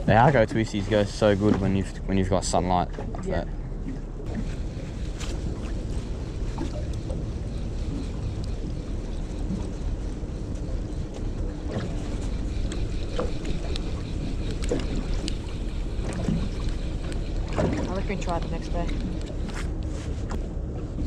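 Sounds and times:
boat engine rumble: 0:00.0 - 0:21.0
water against hull: 0:00.0 - 0:21.0.

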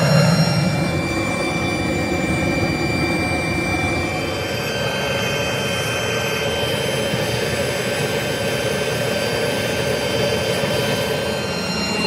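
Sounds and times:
faint high whine: 0:00.0 - 0:07.3
steady machine drone: 0:00.0 - 0:12.0.

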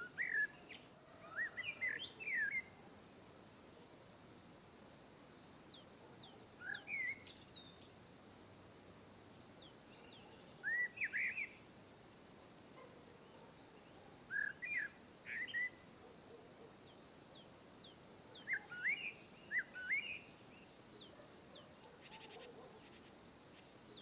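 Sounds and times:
bird chirping: 0:00.0 - 0:02.8, 0:05.4 - 0:07.9, 0:09.3 - 0:11.6, 0:13.2 - 0:15.8, 0:16.8 - 0:24.0
faint steady hiss: 0:00.0 - 0:24.0.

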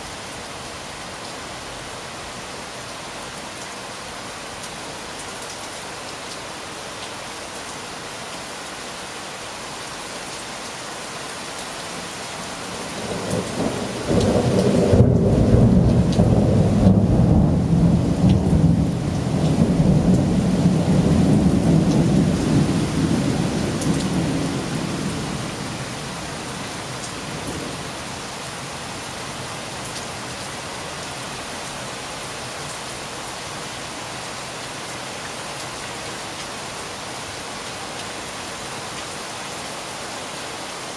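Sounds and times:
steady rain: 0:00.0 - 0:40.9
thunder rumbling: 0:13.0 - 0:25.4.

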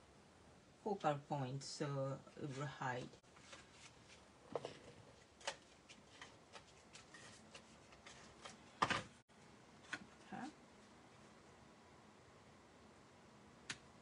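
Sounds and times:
card stock tapping and rustling: 0:03.4 - 0:09.2.

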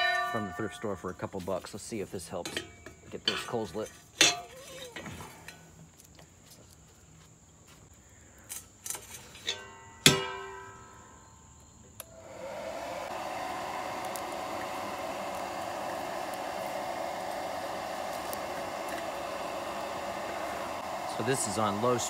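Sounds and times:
sharp metal clang: 0:00.0 - 0:01.0, 0:09.4 - 0:10.9
hairdryer blowing air: 0:12.0 - 0:22.0.

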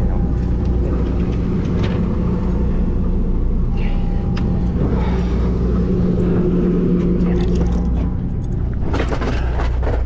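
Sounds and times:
boat engine droning: 0:00.0 - 0:10.0.

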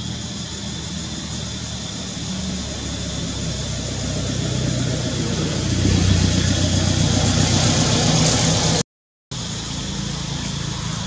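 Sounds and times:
engine running low hum: 0:00.0 - 0:11.0.

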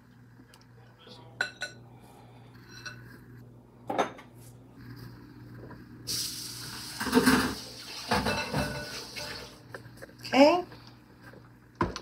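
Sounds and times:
dishes clattering: 0:01.4 - 0:01.8, 0:03.9 - 0:04.3, 0:06.9 - 0:09.6
tap water running: 0:06.1 - 0:09.8.

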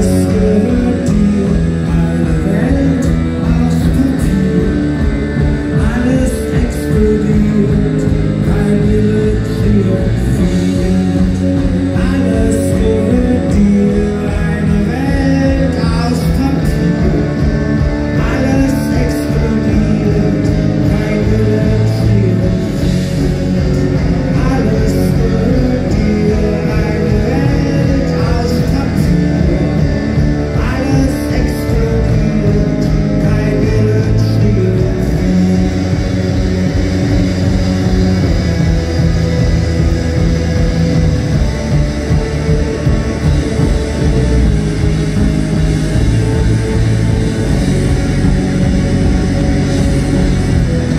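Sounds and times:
man singing: 0:00.0 - 0:38.4
rock band playing: 0:00.0 - 0:50.9.

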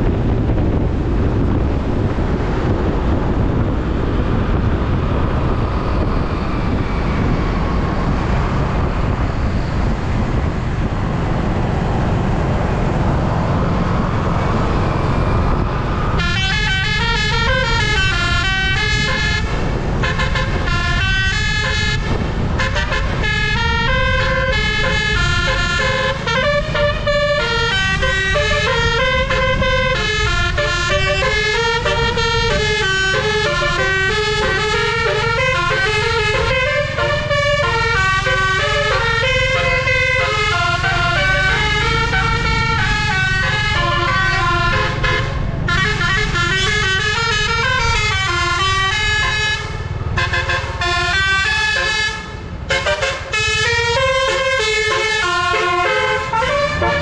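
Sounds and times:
engine and road rumble: 0:00.0 - 0:57.0
bus musical horn melody: 0:16.1 - 0:57.0.

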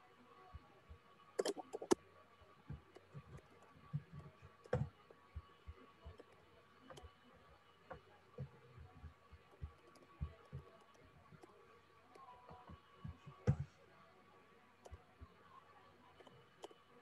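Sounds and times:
keyboard keys clicking: 0:01.4 - 0:02.0.

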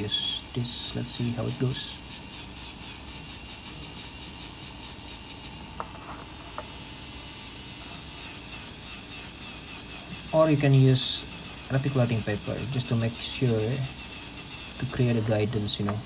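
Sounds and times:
dental handpiece hissing: 0:00.0 - 0:16.0.

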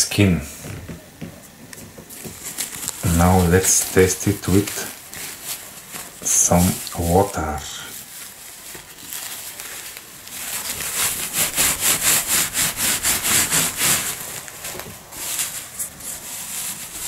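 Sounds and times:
nappy rustling: 0:01.5 - 0:17.0.

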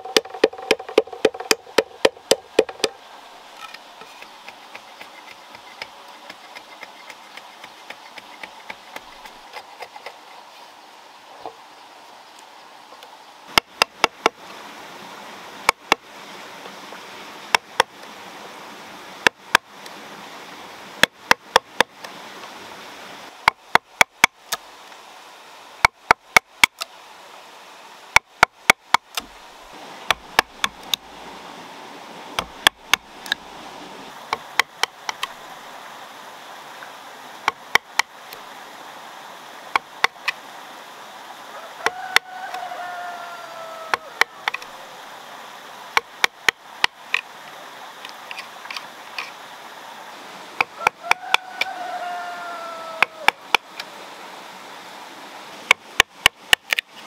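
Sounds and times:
knife chopping bamboo: 0:00.0 - 0:03.0, 0:04.2 - 0:10.2, 0:13.5 - 0:14.4, 0:30.1 - 0:31.0, 0:32.4 - 0:33.4, 0:37.4 - 0:38.1
steady background hiss: 0:00.0 - 0:57.0.

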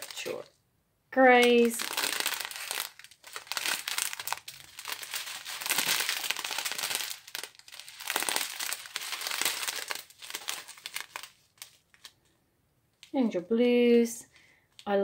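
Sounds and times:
plastic bags crinkling: 0:00.0 - 0:00.5, 0:01.2 - 0:12.3.

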